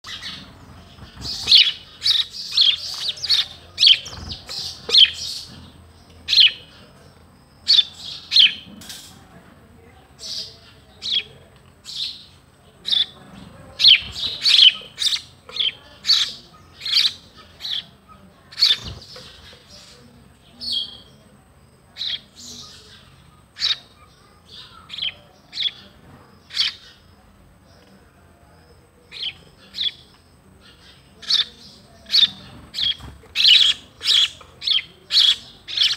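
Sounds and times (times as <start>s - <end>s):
sparrow chirping: 0.0s - 9.3s, 10.2s - 35.9s.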